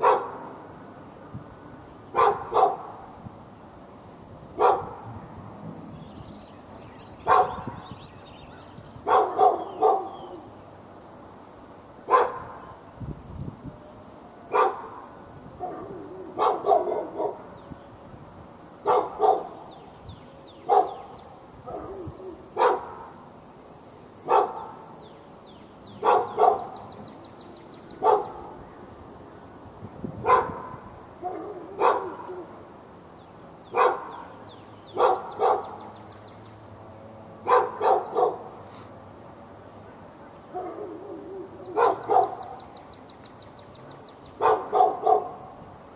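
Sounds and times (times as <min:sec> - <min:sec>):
dog barking: 0:00.0 - 0:00.5, 0:02.1 - 0:03.0, 0:04.6 - 0:05.1, 0:07.2 - 0:07.8, 0:09.0 - 0:10.4, 0:12.1 - 0:12.7, 0:14.5 - 0:17.5, 0:18.8 - 0:19.6, 0:20.7 - 0:23.2, 0:24.2 - 0:24.9, 0:26.0 - 0:26.8, 0:28.0 - 0:28.6, 0:30.2 - 0:32.5, 0:33.7 - 0:34.3, 0:34.9 - 0:35.9, 0:37.4 - 0:38.5, 0:40.5 - 0:42.6, 0:44.4 - 0:45.5.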